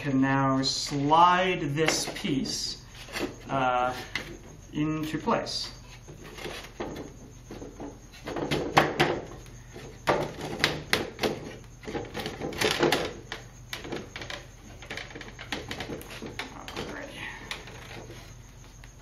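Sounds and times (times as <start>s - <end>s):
wooden parts knocking: 6.1s - 18.2s.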